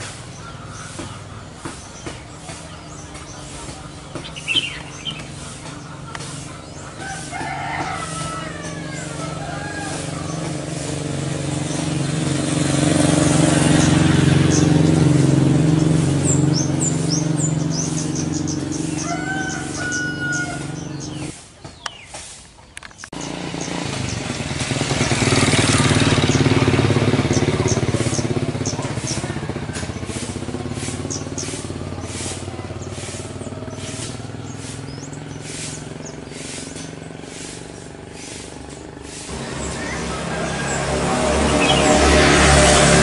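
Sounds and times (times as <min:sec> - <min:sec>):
high bird chirps: 0:00.0 - 0:09.3, 0:13.6 - 0:22.2
passing vehicle engine: 0:00.0 - 0:21.4, 0:23.0 - 0:43.0.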